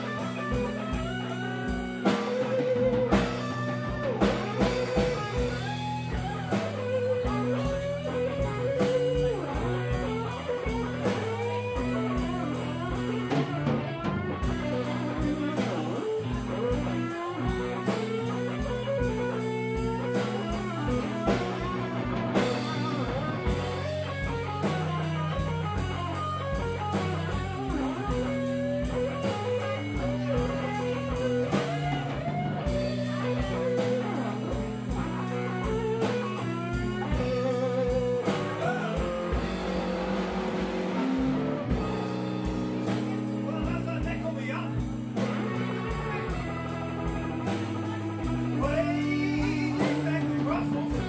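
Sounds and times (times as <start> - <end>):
bass: 0.0 - 51.0
drum kit beat: 0.0 - 51.0
electric guitar solo: 0.0 - 51.0.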